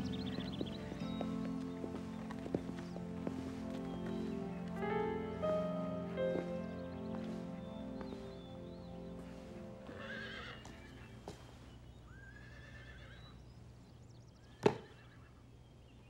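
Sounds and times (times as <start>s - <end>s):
soft music: 0.0s - 11.9s
horse whinnying: 9.9s - 11.1s, 12.1s - 13.3s, 14.5s - 15.3s.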